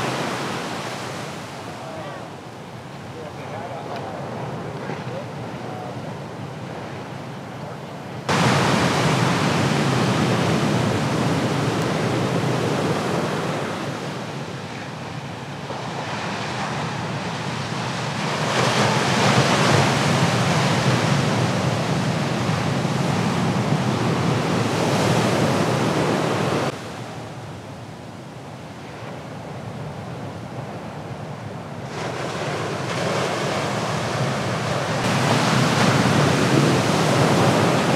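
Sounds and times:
surf breaking on a reef: 0.0s - 7.6s, 8.2s - 37.9s
wind on the microphone: 28.8s - 37.9s.

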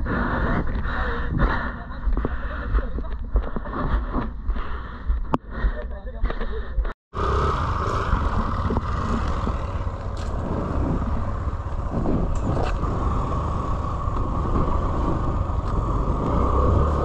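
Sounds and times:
engine running: 7.1s - 17.0s.

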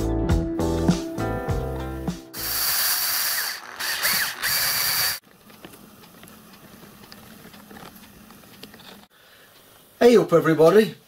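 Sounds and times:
lathe gears clicking: 2.4s - 9.1s.

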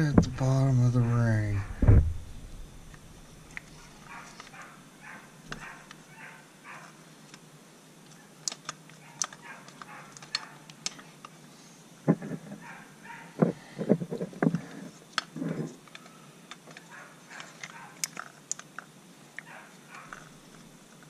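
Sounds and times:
faint muffled sounds: 0.0s - 7.4s
loud knock: 1.6s - 2.8s.

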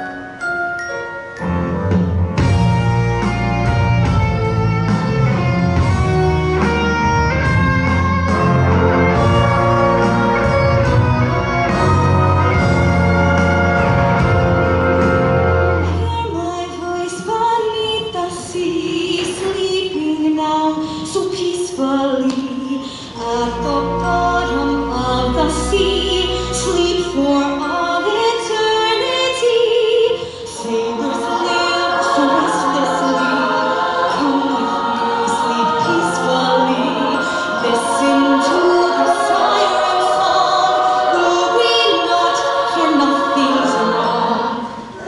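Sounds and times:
live backing band: 0.0s - 18.2s
women's choir singing: 23.2s - 45.0s.

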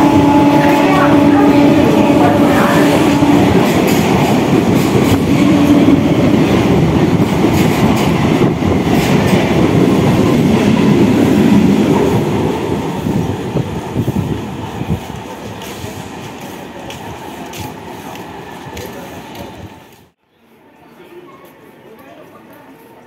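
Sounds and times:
train horn: 0.0s - 4.5s
train passing at speed: 0.0s - 20.2s.

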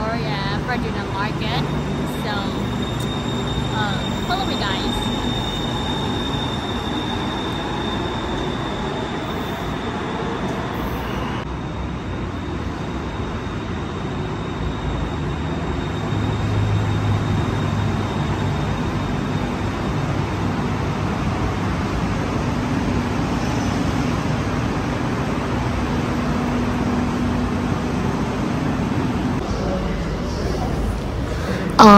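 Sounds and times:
thin high whine: 0.0s - 20.7s
electric train rumble and hum: 0.0s - 31.9s.

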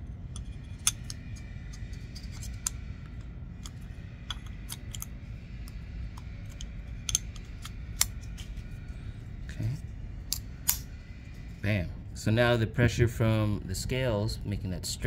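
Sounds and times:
small knife parts clicking: 3.6s - 5.1s, 10.3s - 10.8s.

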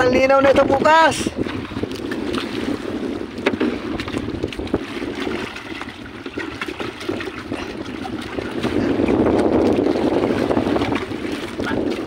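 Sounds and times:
wind buffeting microphone: 0.0s - 12.0s
water splashing in basin: 3.5s - 12.0s.

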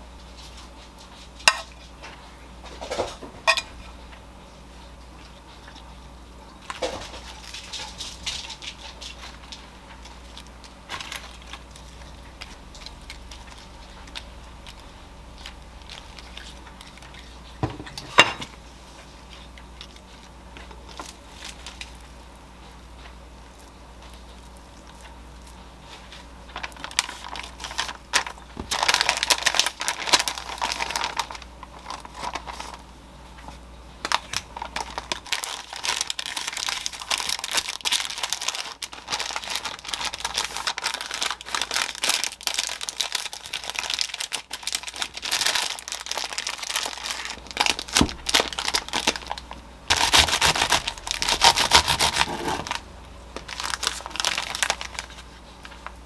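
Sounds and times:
parchment paper crinkling: 6.6s - 17.7s, 18.7s - 52.8s, 53.4s - 56.0s.

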